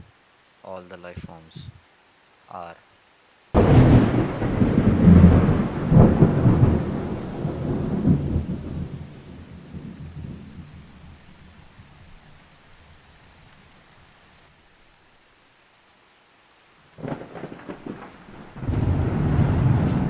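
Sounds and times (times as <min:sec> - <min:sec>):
rolling thunder: 0:03.6 - 0:11.2, 0:17.0 - 0:20.0
thunderclap: 0:03.6 - 0:11.2, 0:17.0 - 0:20.0.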